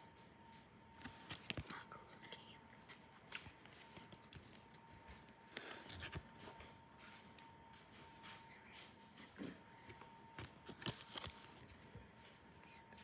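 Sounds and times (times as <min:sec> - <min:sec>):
faint steady high whine: 0:00.0 - 0:13.0
card packs rustling and clicking: 0:01.0 - 0:06.8, 0:09.9 - 0:11.9.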